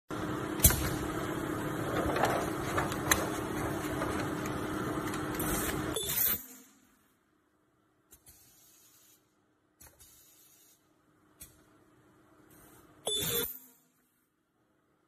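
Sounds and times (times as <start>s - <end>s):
welding machine hum: 0.1s - 7.1s.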